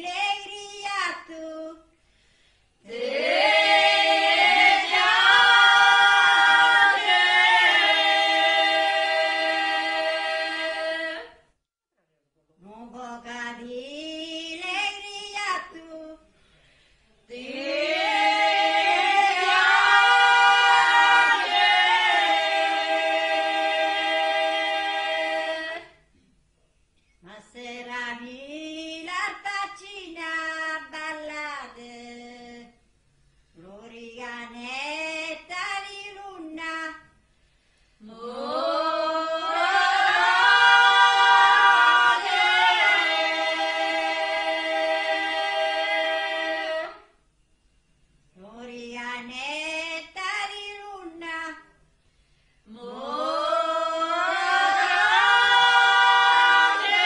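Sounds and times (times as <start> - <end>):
women's choir singing: 2.8 - 11.4, 17.3 - 26.0, 38.0 - 47.2, 52.7 - 57.0.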